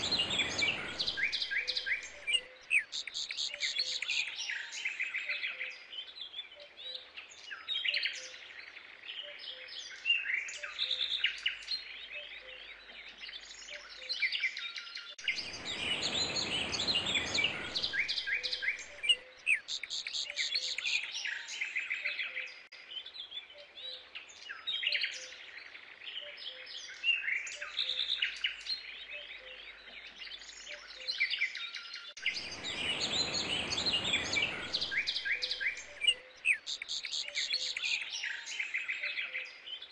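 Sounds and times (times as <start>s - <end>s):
soft rushing noise: 0.0s - 2.3s, 15.3s - 19.1s, 32.2s - 36.1s
small birds chirping: 0.0s - 39.9s.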